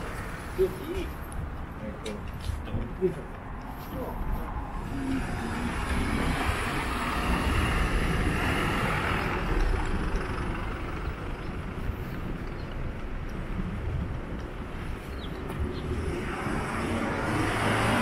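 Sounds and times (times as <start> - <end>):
vehicle passing close by: 4.8 - 12.1, 15.8 - 18.0.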